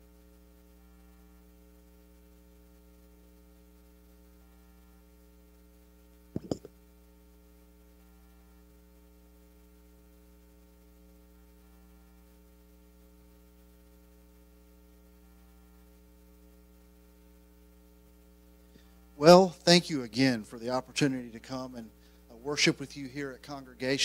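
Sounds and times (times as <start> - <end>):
electrical mains hum: 0.0 - 24.0
sharp knocks: 6.4 - 6.7.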